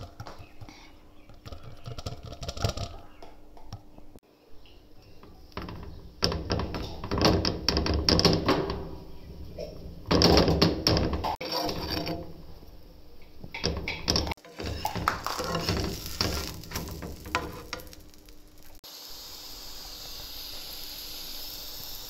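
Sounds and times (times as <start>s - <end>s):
knocking and rubbing on iron griddle: 5.2s - 12.6s, 13.4s - 18.8s.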